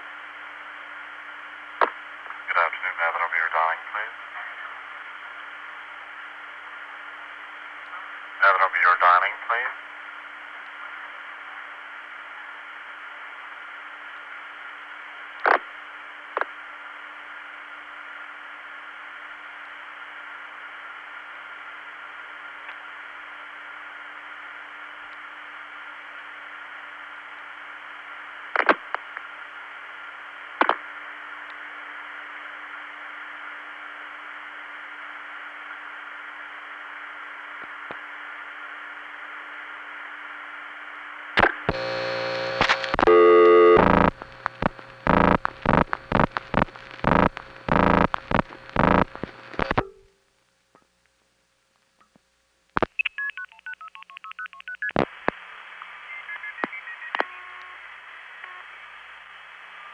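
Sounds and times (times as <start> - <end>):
telephone line hiss: 41.7 - 50.0, 52.9 - 58.9.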